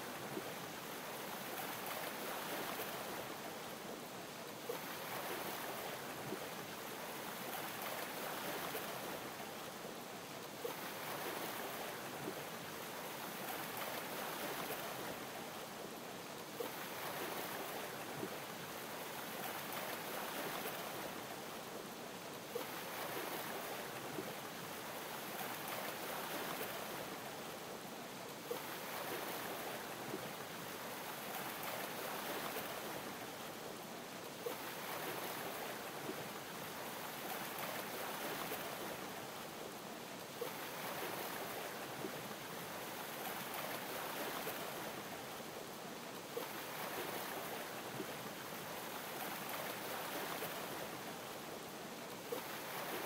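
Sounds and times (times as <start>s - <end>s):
sea water lapping: 16.6s - 21.2s, 22.5s - 27.3s, 28.4s - 33.2s, 34.3s - 39.2s, 40.4s - 45.2s, 46.2s - 51.1s, 52.2s - 53.0s.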